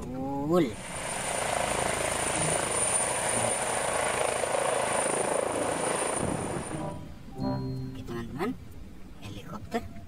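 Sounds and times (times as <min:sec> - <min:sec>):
helicopter rotor and turbine: 0:00.7 - 0:07.0
high thin whine: 0:00.8 - 0:08.0.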